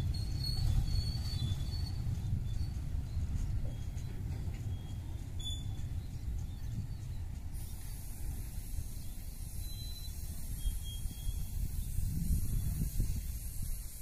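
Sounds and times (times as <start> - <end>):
train wagons rumbling past: 0.0 - 14.0
high hiss: 7.6 - 14.0.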